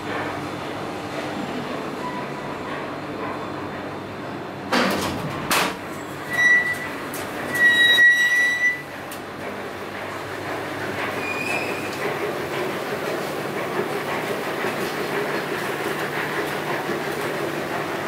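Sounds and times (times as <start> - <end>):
elevator clunks: 4.7 - 9.6
sliding doors opening: 4.8 - 17.9.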